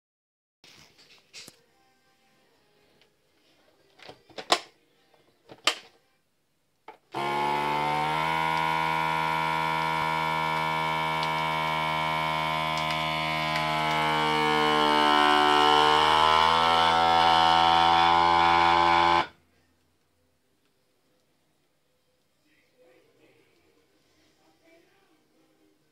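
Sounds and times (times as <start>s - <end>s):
vacuum pump humming: 7.1s - 19.4s.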